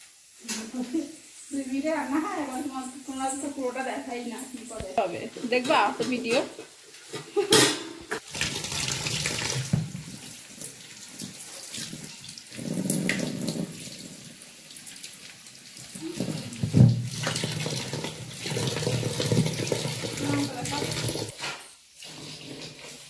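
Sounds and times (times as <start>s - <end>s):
tap water splashing into sink: 7.6s - 14.1s, 15.9s - 21.4s.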